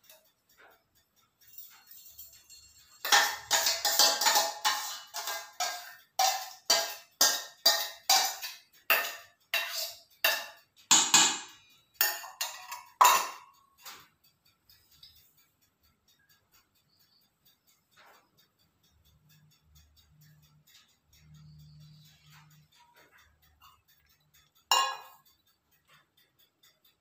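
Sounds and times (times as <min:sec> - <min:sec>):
faint clinks: 0:01.4 - 0:06.9, 0:21.2 - 0:25.3
utensil knocking on steel bowl: 0:03.0 - 0:14.0, 0:24.7 - 0:25.2.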